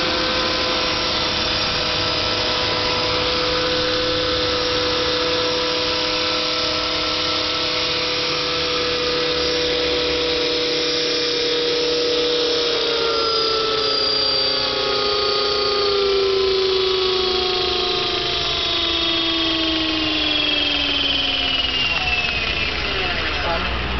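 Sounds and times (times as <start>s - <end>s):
rc helicopter motor and rotor whine: 0.0s - 23.9s.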